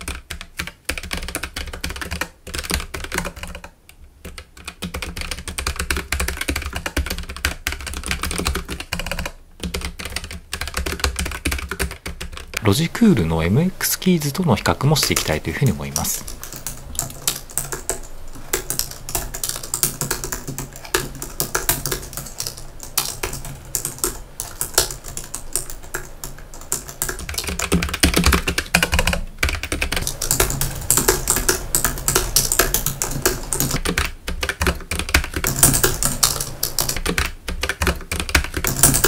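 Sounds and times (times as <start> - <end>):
mechanical keyboard clacks: 0.0 - 39.0
soft keyboard typing: 0.0 - 39.0.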